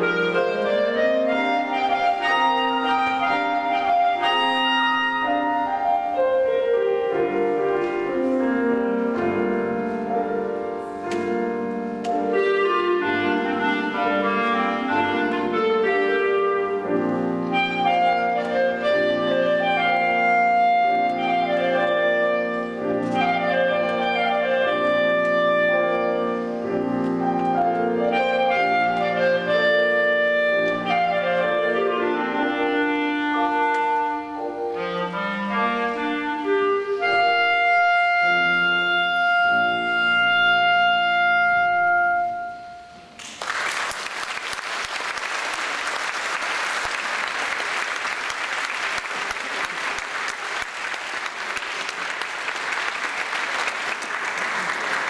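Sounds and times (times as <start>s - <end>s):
clarinet: 0.0s - 43.2s
piano: 0.0s - 55.0s
audience applauding: 43.2s - 55.0s.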